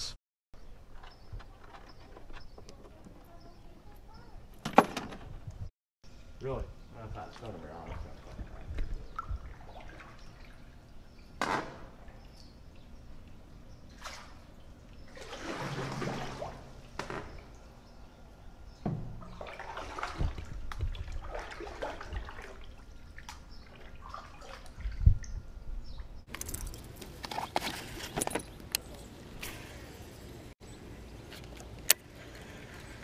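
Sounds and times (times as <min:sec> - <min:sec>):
paddle splashing through water: 0:15.1 - 0:17.4, 0:19.0 - 0:25.0.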